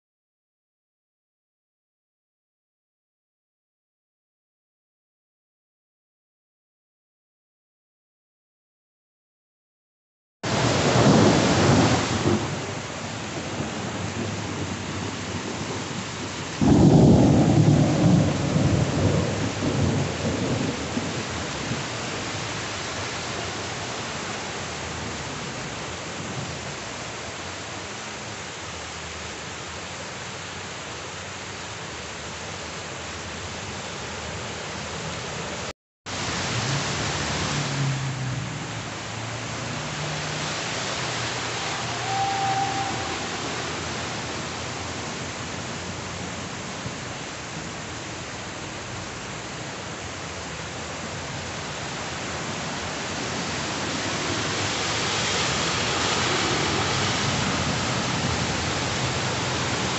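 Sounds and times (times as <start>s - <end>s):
heavy rain on street: 10.4s - 59.9s
thunder rumble: 10.5s - 22.4s, 39.1s - 45.1s.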